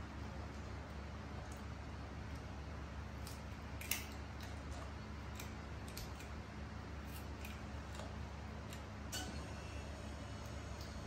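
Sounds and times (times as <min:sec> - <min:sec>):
steady low hum: 0:00.0 - 0:11.0
monkey chewing food: 0:00.4 - 0:08.9
sharp clicks and smacks: 0:03.1 - 0:06.4.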